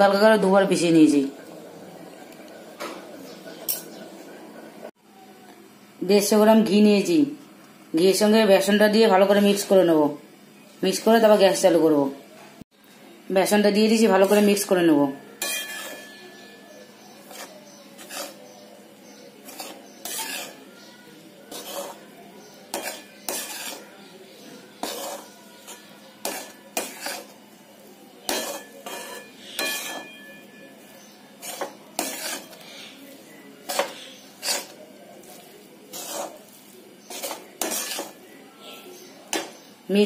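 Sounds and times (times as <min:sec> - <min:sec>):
steel spatula scraping a metal pan: 0:15.3 - 0:38.3.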